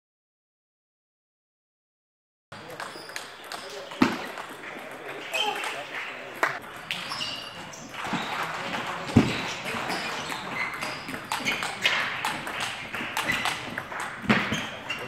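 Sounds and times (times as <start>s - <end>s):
table tennis ball clicking: 2.7s - 5.8s, 8.0s - 14.8s.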